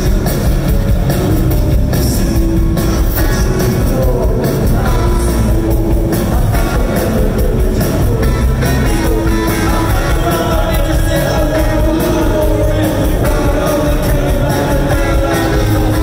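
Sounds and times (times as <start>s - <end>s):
bass: 0.0s - 16.0s
drums: 0.0s - 16.0s
electric guitars: 0.0s - 16.0s
person singing: 0.0s - 16.0s.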